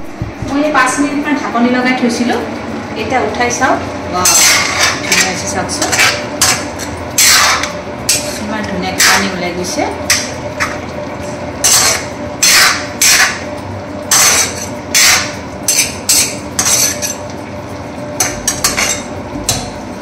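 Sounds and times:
metal spoon scraping a pot: 4.2s - 9.4s, 11.6s - 13.4s, 14.1s - 17.2s, 18.2s - 19.2s.

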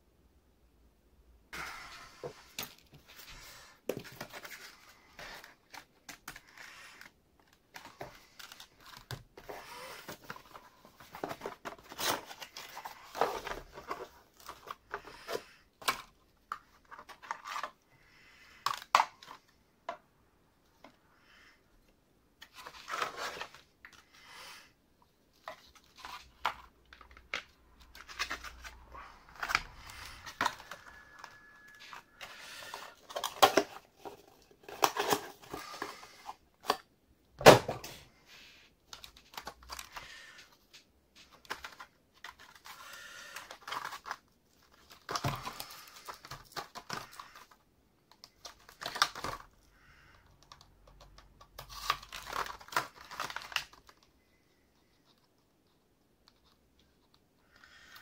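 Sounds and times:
plastic packaging crinkling: 25.5s - 36.2s, 51.0s - 54.1s.

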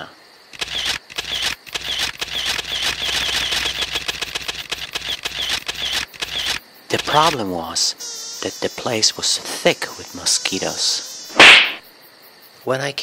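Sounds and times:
insects chirping: 0.0s - 13.0s
noisy hiss with crackles: 2.5s - 12.4s.

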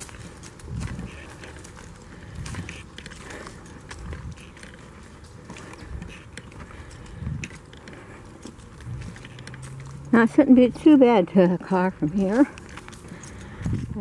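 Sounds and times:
footsteps on gravel and leaves: 0.0s - 14.0s.

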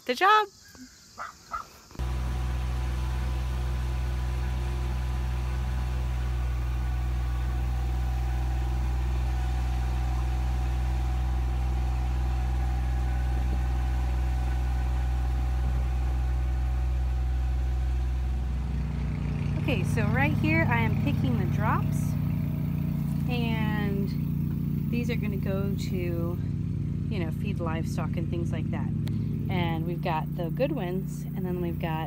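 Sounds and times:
engine idling: 1.9s - 32.0s.

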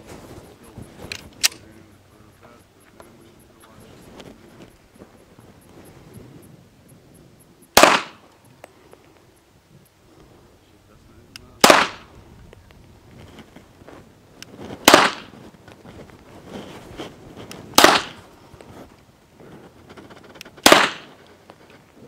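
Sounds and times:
pistol shots with echo: 7.8s - 8.2s, 11.6s - 12.1s, 14.8s - 15.3s, 17.8s - 18.2s, 20.6s - 21.2s.

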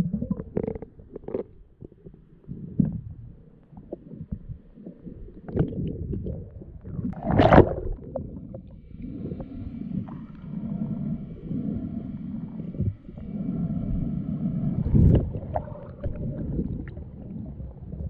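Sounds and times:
muffled underwater rumbling: 0.0s - 18.0s
underwater rushing burst: 6.9s - 18.0s
faint steady whine: 8.0s - 18.0s.

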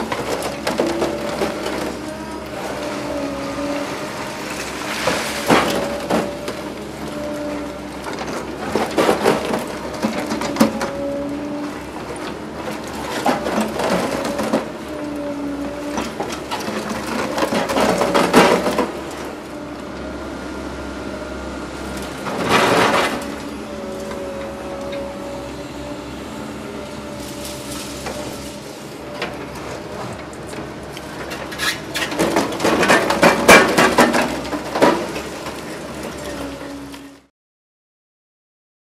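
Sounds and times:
excavator machine whine: 0.0s - 37.3s
concrete chunks falling: 32.0s - 35.2s.

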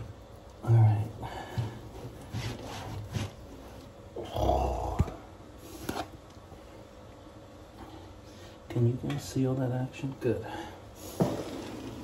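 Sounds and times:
wallpaper rustling and handling: 0.3s - 4.1s.

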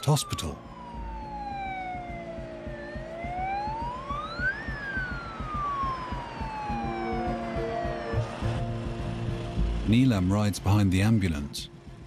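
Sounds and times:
ambulance siren wailing: 0.0s - 8.6s.

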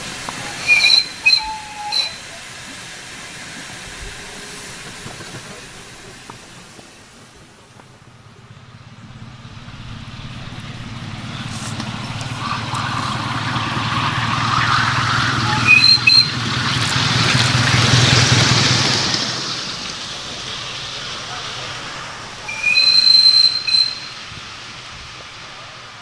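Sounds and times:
miniature steam locomotive passing: 0.0s - 26.0s
high-pitched whistle shrieks: 0.4s - 2.4s, 14.3s - 16.4s, 22.4s - 24.3s.

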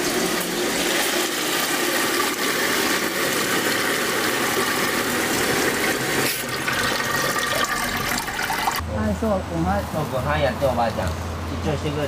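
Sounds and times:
water pouring into tub: 0.0s - 8.8s.

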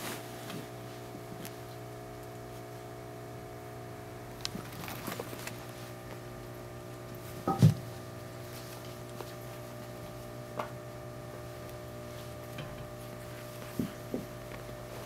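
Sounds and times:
cats scuffling: 0.0s - 1.8s, 4.4s - 6.2s, 7.2s - 10.3s, 11.7s - 15.0s
steady low hum: 0.0s - 15.0s.

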